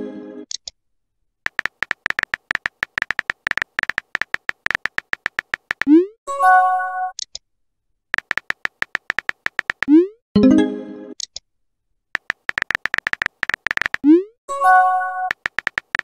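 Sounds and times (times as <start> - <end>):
virtual keyboard tap clicks: 1.5 - 5.9, 8.2 - 9.9, 12.2 - 14.0, 15.3 - 16.0.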